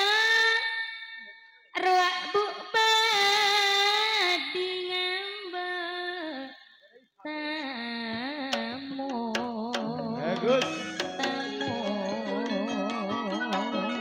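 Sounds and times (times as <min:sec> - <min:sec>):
woman singing through microphone: 0:01.8 - 0:06.6, 0:07.3 - 0:14.0
sharp percussion strokes: 0:08.6 - 0:12.6.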